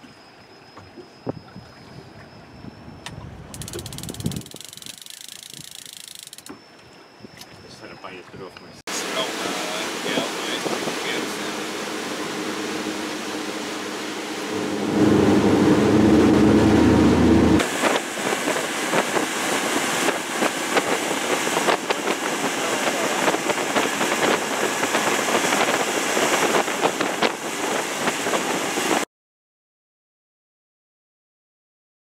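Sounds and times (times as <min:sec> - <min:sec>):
churning wake water: 0:00.0 - 0:29.0
motorboat engine hum: 0:00.0 - 0:29.0
wind noise: 0:00.8 - 0:08.8, 0:09.4 - 0:29.0
wind buffeting microphone: 0:01.2 - 0:06.0, 0:09.4 - 0:29.0.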